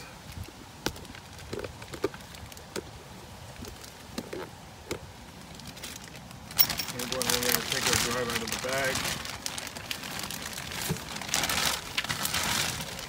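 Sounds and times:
plastic bag rustling: 5.1 - 13.0.

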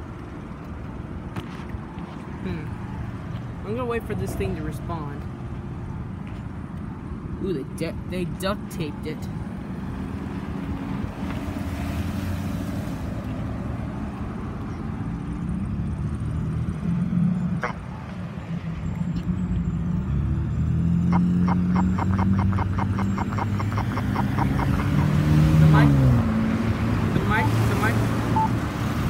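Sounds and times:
road traffic: 0.0 - 29.0
pedestrian signal rapid ticks: 21.1 - 25.0, 28.3 - 28.6.

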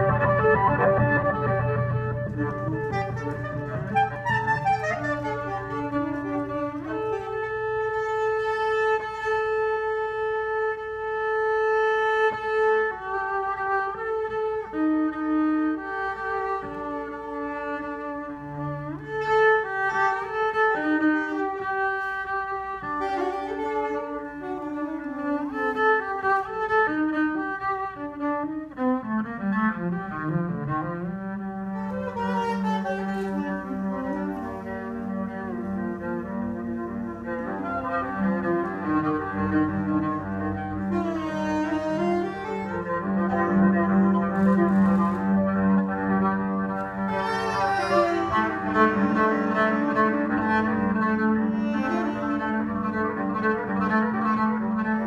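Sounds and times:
bowed cello: 0.0 - 55.0
saxophone improvising: 0.6 - 8.6, 46.8 - 53.8.

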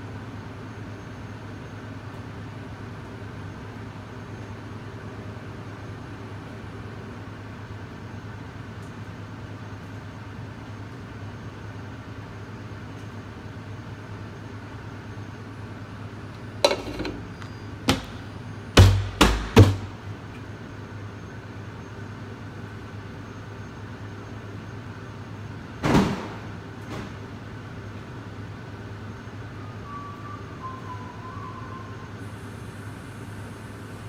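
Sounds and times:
exhaust hood humming: 16.5 - 20.6
loud sharp knocks and bumps: 18.8 - 20.0.

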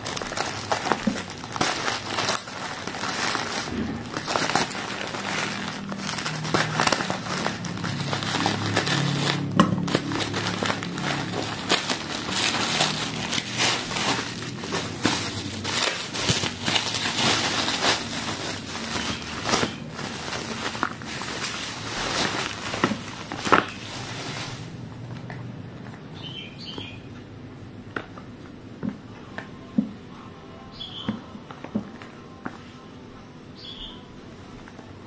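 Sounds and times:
plastic packaging crinkling: 0.0 - 27.0.

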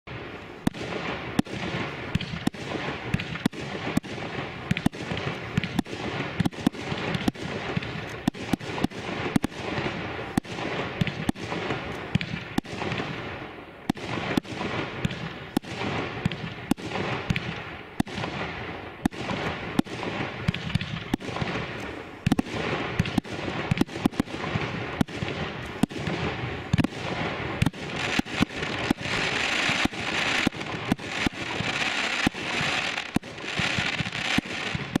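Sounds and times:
hiss of burning fireworks: 0.1 - 35.0
firework shells banging: 27.6 - 35.0.

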